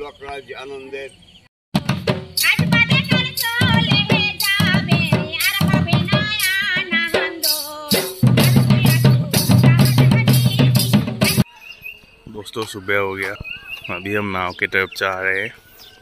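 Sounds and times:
barrel drum beating: 1.7 - 11.4
woman singing: 2.4 - 11.5.

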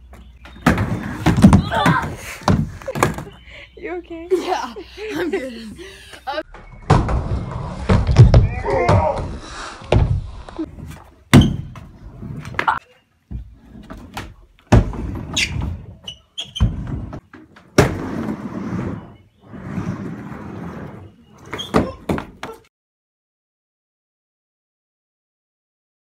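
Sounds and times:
scooter deck thudding on ramp: 0.5 - 3.3, 11.3 - 11.9
scooter wheels rolling on ramp: 13.4 - 22.7.

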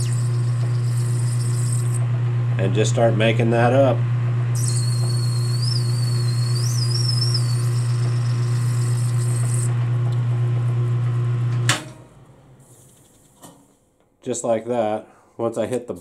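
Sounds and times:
high squeal from cutting: 0.0 - 2.0, 4.6 - 9.7
lathe motor hum: 0.0 - 2.7, 4.9 - 11.6.

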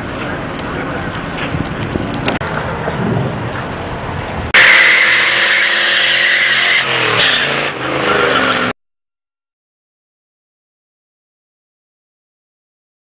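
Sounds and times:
car engine revving hard: 4.6 - 8.8
tyre squeal: 4.6 - 8.8.

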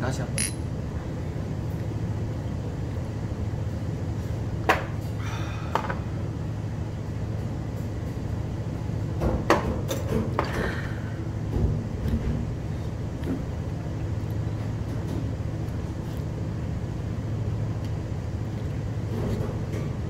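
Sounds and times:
low room hum: 0.0 - 20.0
glass and tableware clicks: 0.4 - 0.6
breathy exhale: 5.2 - 6.0, 10.5 - 11.2.

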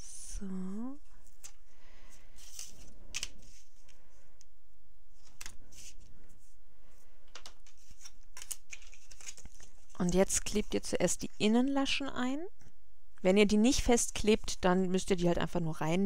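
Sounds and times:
tape rustling: 2.3 - 3.9, 7.2 - 10.3.

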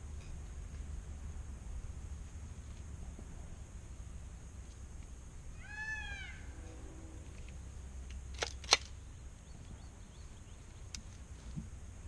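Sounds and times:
rifle metallic clicks: 7.4 - 9.0.

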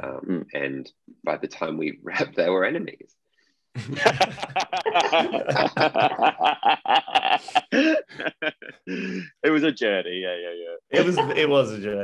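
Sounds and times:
people laughing: 3.8 - 9.4, 10.9 - 11.8.

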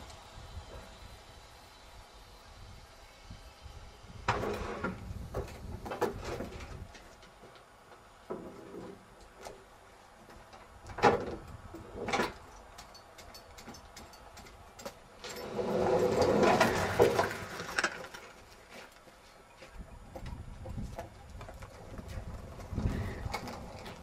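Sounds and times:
pallet truck rattling: 15.3 - 18.2.

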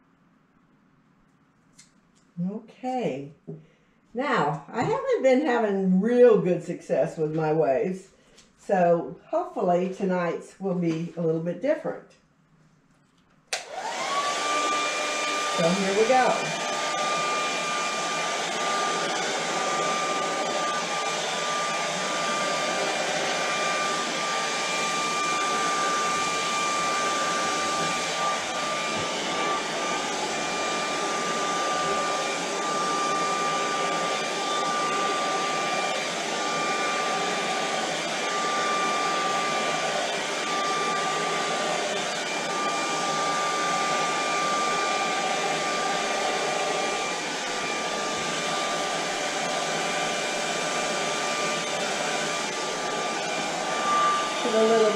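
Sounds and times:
blow dryer running: 13.5 - 54.9.

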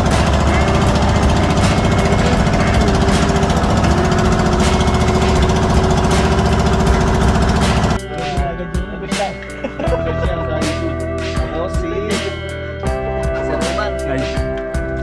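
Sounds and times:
boat engine running: 0.0 - 8.0.

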